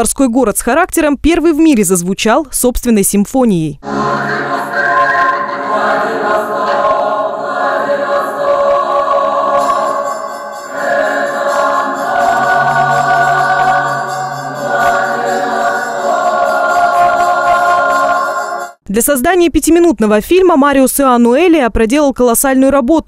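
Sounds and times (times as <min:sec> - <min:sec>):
choir singing held chords: 0:03.8 - 0:18.8.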